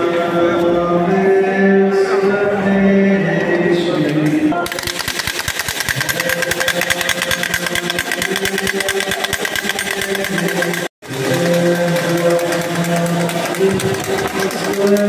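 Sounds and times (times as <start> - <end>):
wooden hand rattle clacking: 4.6 - 15.0.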